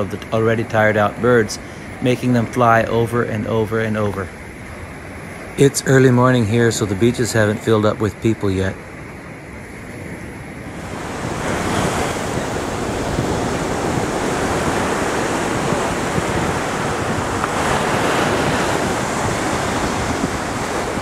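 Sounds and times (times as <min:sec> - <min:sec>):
wind on microphone: 0:00.0 - 0:21.0
surf washing onto beach: 0:10.0 - 0:21.0.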